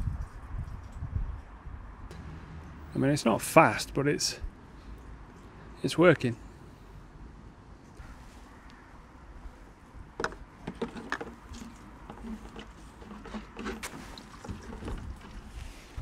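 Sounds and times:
plastic containers knocking: 0:10.2 - 0:15.4.

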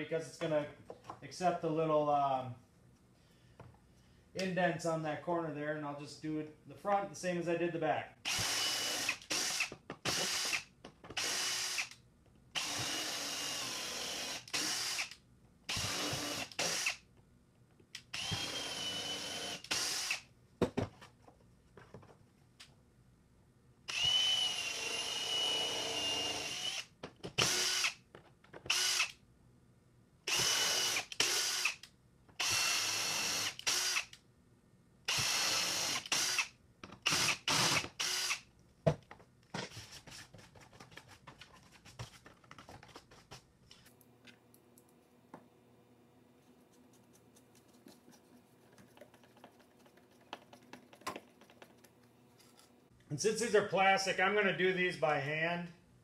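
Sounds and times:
cordless drill motor whine: 0:11.2 - 0:12.0, 0:12.6 - 0:17.0, 0:18.1 - 0:20.2, 0:23.9 - 0:28.0, 0:28.7 - 0:29.2, 0:30.3 - 0:31.8, 0:32.4 - 0:34.1, 0:35.1 - 0:38.4.

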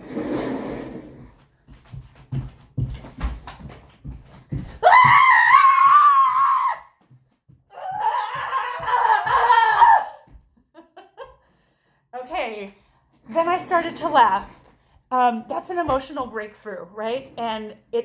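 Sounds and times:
woman screaming: 0:04.8 - 0:06.9, 0:07.7 - 0:10.3.

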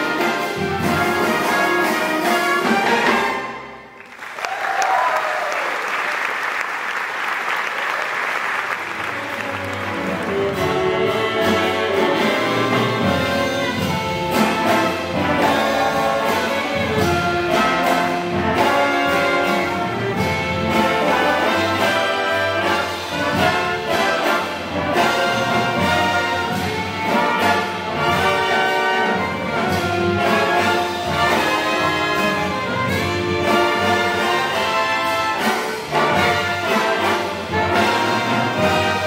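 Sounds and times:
jazz big band playing: 0:00.0 - 0:03.9, 0:08.4 - 0:39.0
audience applauding: 0:03.9 - 0:10.8
baritone saxophone: 0:09.0 - 0:39.0.

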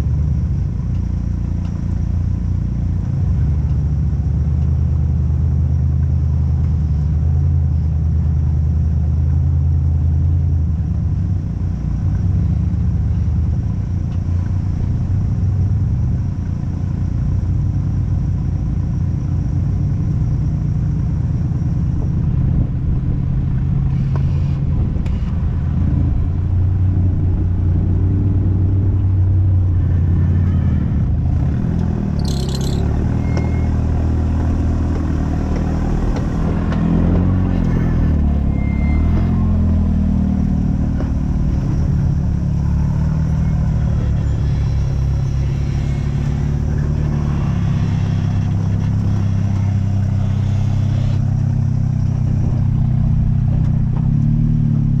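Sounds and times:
off-road vehicle engine running: 0:00.0 - 0:55.0
high squeak: 0:32.2 - 0:33.7.

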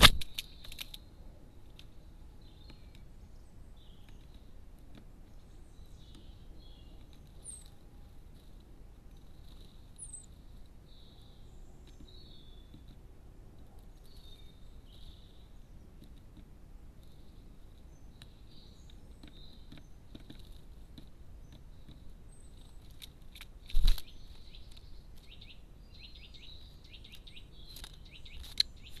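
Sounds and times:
small birds chirping: 0:00.0 - 0:29.0
woodpecker beak tapping: 0:16.0 - 0:22.2.

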